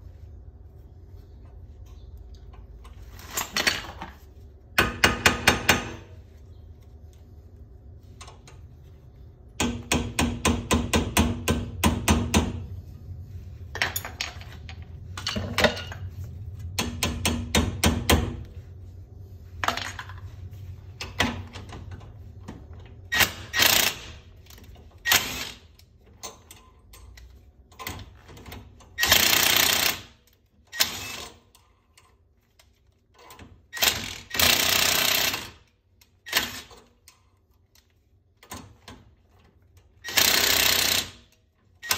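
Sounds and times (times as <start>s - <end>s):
cordless impact wrench hammering: 9.6s - 12.6s, 29.0s - 30.2s, 33.8s - 35.6s, 40.0s - 41.9s.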